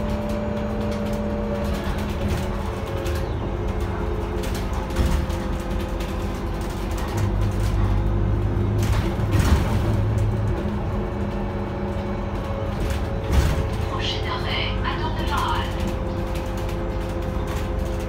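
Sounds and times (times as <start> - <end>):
bus engine droning: 0.0 - 18.0
road and body noise: 0.0 - 18.0.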